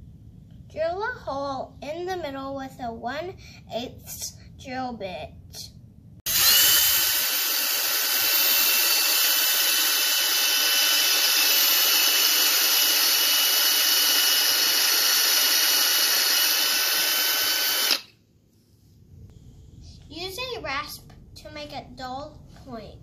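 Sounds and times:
cordless drill boring into wood: 6.3s - 18.1s.

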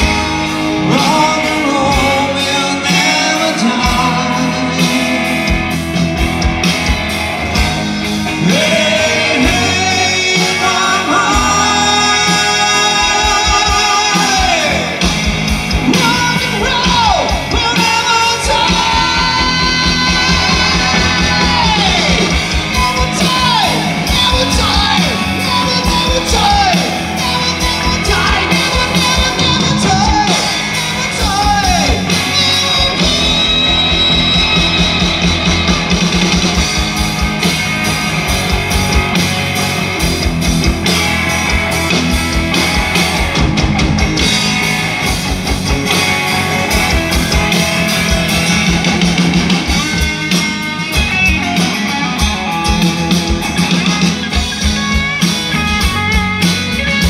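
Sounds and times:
male lead vocal: 0.0s - 5.8s, 8.2s - 36.3s
drums keeping a beat: 0.0s - 57.0s
electric and acoustic guitars: 0.0s - 57.0s.

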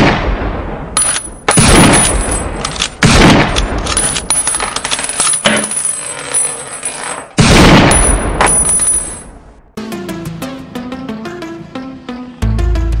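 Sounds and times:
echoing gunshots: 0.0s - 4.2s, 7.4s - 8.9s.

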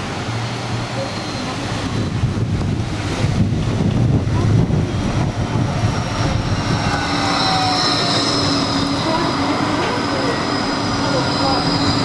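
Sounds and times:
high tram whine: 0.0s - 12.0s
tram passing: 0.0s - 12.0s
wind buffeting microphone: 1.7s - 7.7s.

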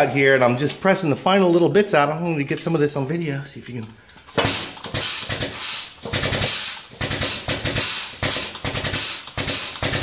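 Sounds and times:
hydraulic press pumping: 4.1s - 10.0s.

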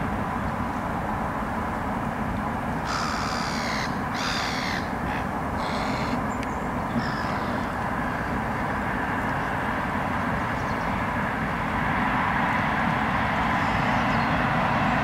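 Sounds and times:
harsh raspy bird calls: 2.8s - 8.4s.

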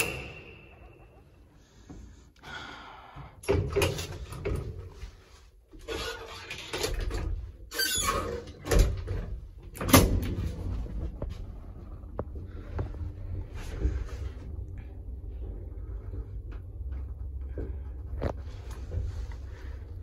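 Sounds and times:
lift door squeaking: 0.0s - 1.2s, 7.7s - 8.9s
steady low hum: 9.0s - 20.0s.

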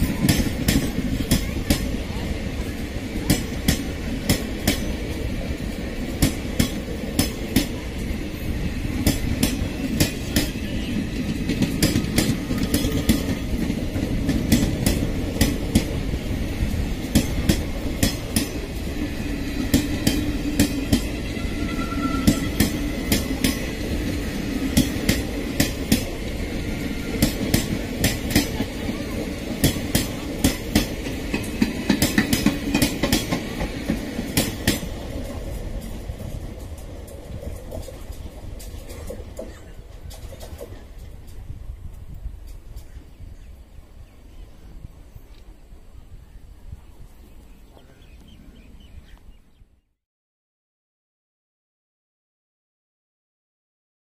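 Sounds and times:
train wheels clacking on rail joints: 0.0s - 43.0s
low train rumble: 0.0s - 49.8s.

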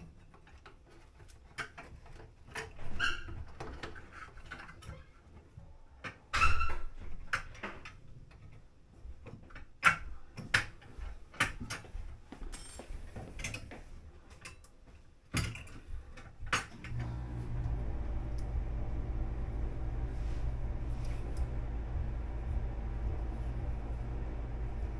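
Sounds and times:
steady low hum: 16.8s - 24.9s.

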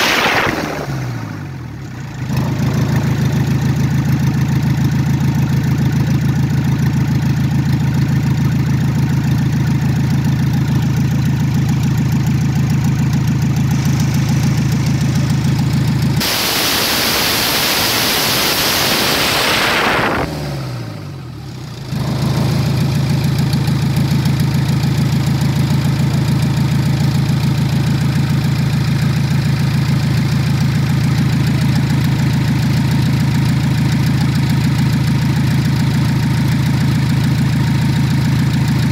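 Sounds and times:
loud hiss: 0.0s - 1.0s, 13.6s - 20.3s
diesel engine idling: 1.2s - 38.9s.

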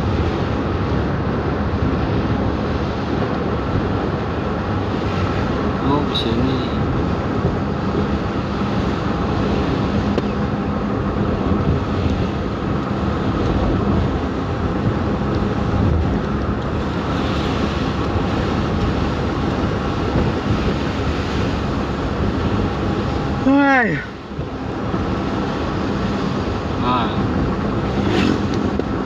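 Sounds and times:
faint engine hum: 0.0s - 29.0s
tyre and road noise on wet road: 0.0s - 29.0s.

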